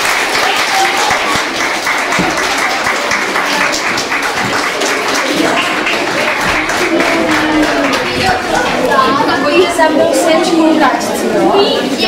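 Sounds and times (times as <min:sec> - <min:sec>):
audience applauding: 0:00.0 - 0:09.4
voices: 0:00.0 - 0:12.0.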